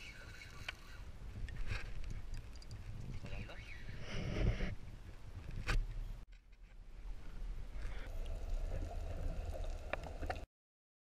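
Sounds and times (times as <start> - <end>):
underwater rumbling of seawater: 8.1 - 10.4.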